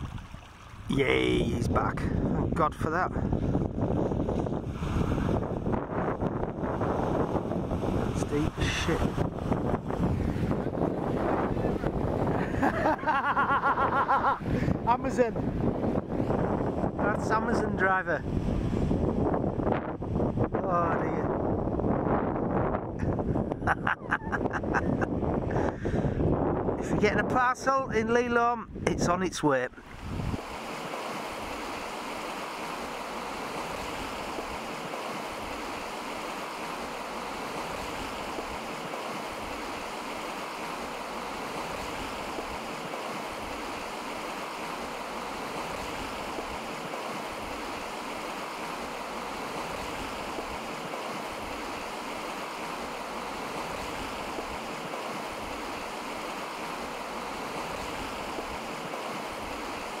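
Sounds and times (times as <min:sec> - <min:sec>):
flooded river rushing: 0:00.0 - 0:01.6, 0:04.4 - 0:15.0, 0:29.8 - 1:00.0.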